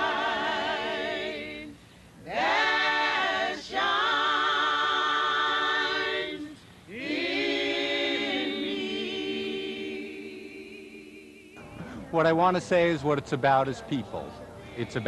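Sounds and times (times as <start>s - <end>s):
women's choir singing: 0.0s - 11.7s, 13.9s - 15.0s
singers breathing: 1.7s - 2.2s.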